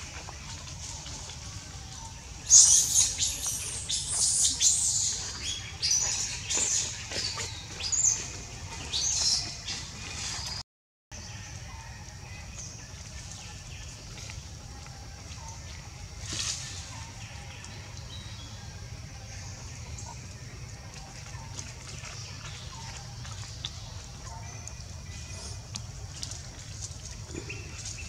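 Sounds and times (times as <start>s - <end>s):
shrill animal calls and chirps: 2.4s - 8.3s.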